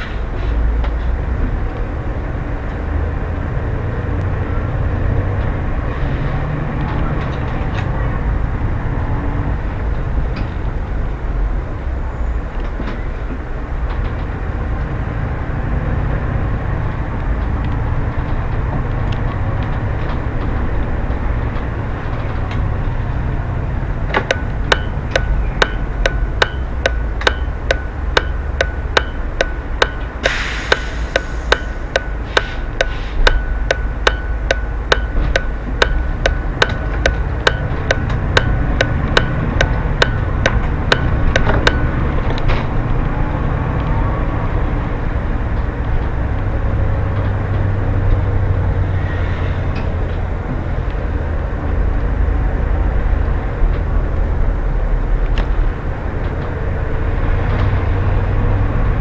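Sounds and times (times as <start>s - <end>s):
bus engine rumble: 0.0s - 59.0s
turn indicator ticking: 23.9s - 43.2s.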